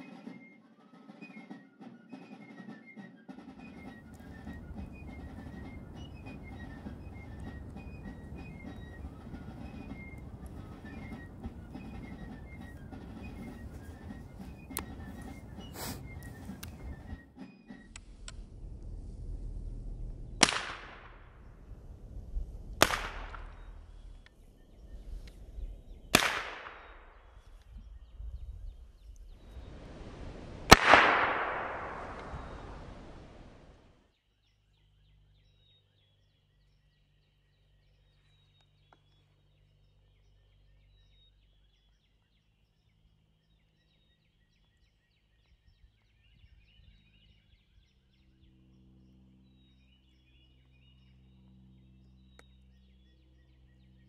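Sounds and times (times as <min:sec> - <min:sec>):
rifle gunshots echoing: 0:26.2 - 0:27.0, 0:30.7 - 0:33.0.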